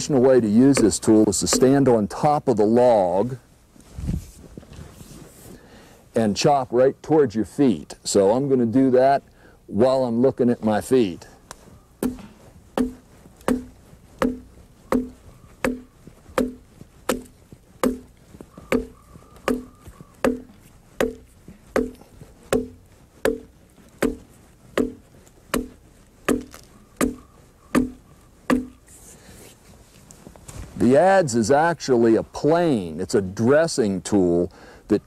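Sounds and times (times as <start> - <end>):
adze chopping into log: 0.7 - 1.9, 12.0 - 28.8.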